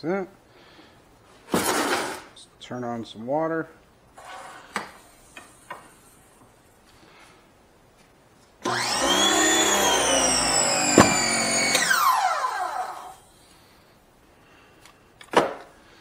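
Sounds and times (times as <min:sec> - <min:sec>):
pressure washer motor running: 0:08.7 - 0:13.2.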